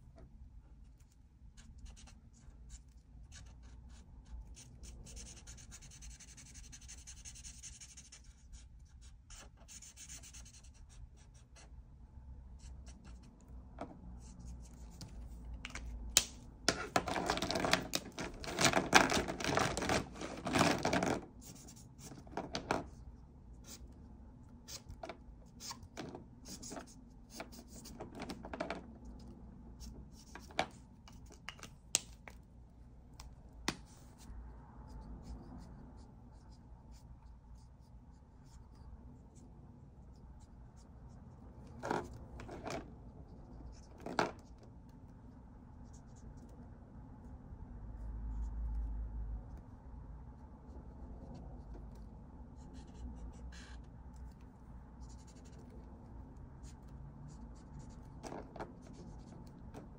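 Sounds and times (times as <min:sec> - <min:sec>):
marker scratching on paper: 0:00.9 - 0:11.8, 0:12.6 - 0:13.5, 0:14.2 - 0:15.5, 0:16.2 - 0:23.9, 0:24.6 - 0:31.4, 0:33.7 - 0:44.6, 0:52.6 - 0:54.4, 0:55.0 - 0:55.8, 0:56.5 - 0:59.9.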